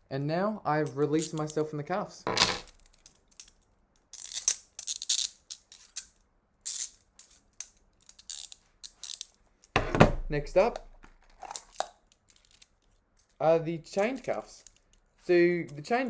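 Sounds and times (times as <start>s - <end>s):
handcuffs clicking and rattling: 0.8s - 1.6s, 2.7s - 9.7s, 11.4s - 16.0s.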